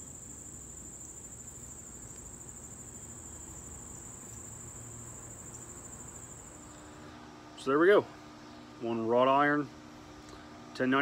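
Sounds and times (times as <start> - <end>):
insect chorus trilling: 0.0 - 8.5.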